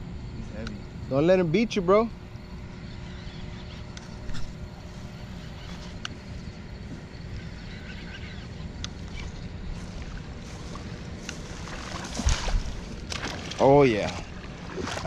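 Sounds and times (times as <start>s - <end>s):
faint sharp clicks: 0.6s - 0.8s.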